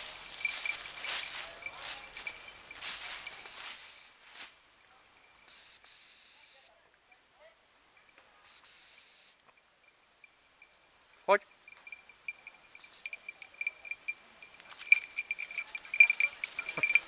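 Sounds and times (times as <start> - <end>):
rustling in dry leaves: 0.0 - 5.5, 13.5 - 17.0
high-pitched dog whistle blasts: 3.3 - 4.2, 5.5 - 6.7, 8.4 - 9.5, 12.8 - 13.2.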